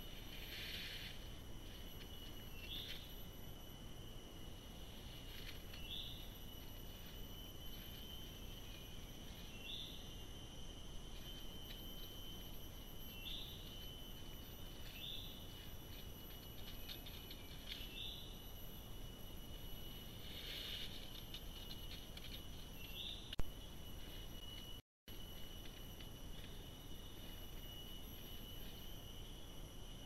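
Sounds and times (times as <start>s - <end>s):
faint rustles: 0.0s - 3.1s, 20.1s - 22.8s
high-pitched insect drone: 0.0s - 30.0s.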